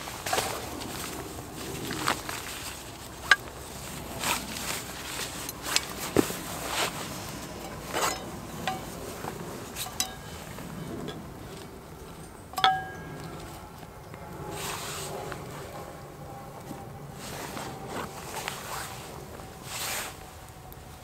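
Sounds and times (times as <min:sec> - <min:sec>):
fabric pouch rustling: 0:00.0 - 0:08.1
metallic clink: 0:07.6 - 0:09.2, 0:09.8 - 0:11.2, 0:12.2 - 0:13.5.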